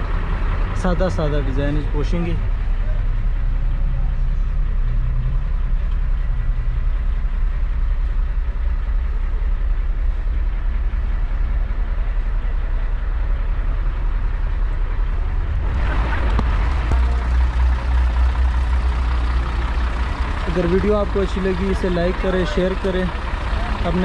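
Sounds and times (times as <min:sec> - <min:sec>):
truck diesel engine idling: 0:00.0 - 0:24.0
rushing noise: 0:14.2 - 0:20.3.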